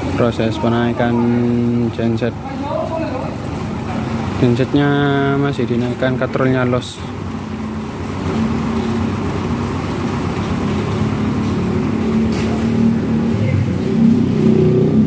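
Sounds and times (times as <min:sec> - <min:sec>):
large engine humming: 0:00.0 - 0:15.0.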